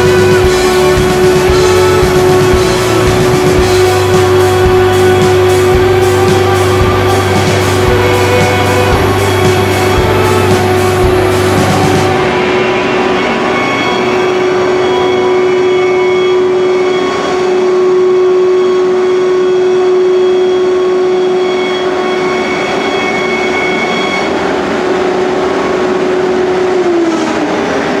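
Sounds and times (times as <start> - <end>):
router spindle cutting board: 0.0 - 28.0.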